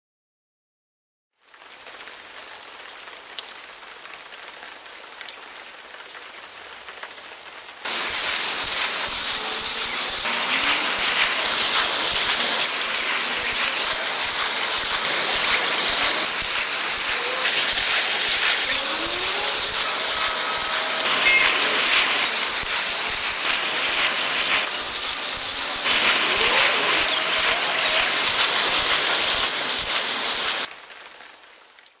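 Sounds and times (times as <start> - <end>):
water spraying and splattering: 7.8 - 31.0
rising squeals: 13.5 - 23.3.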